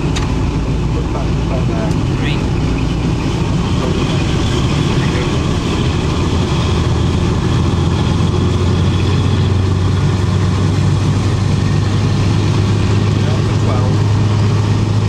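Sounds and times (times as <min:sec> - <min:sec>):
diesel locomotive engines droning: 0:00.0 - 0:15.0.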